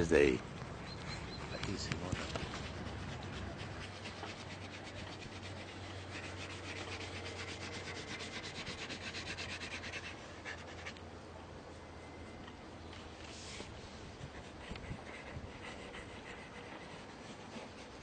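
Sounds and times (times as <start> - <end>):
paintbrush scrubbing on canvas: 1.8 - 11.0, 13.2 - 18.0.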